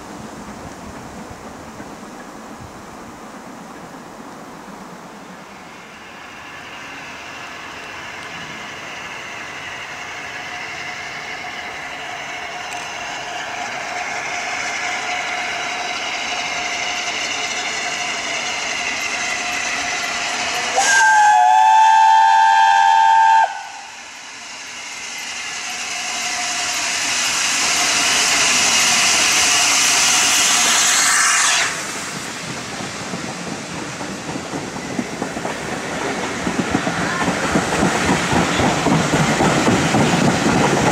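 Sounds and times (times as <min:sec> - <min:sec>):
steam locomotive exhaust and running: 0:00.0 - 0:40.9
steam locomotive whistle: 0:20.6 - 0:24.2, 0:30.5 - 0:31.9.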